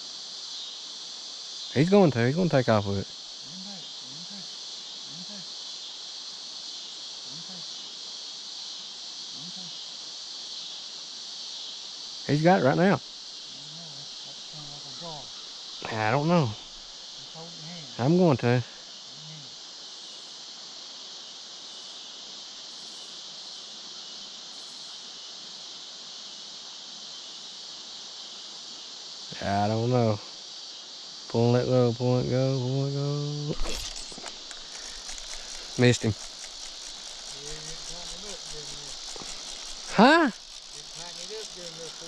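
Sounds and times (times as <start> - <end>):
crickets and insects chirring: 0.0 - 42.0
low arching call: 13.5 - 16.7, 33.5 - 42.0.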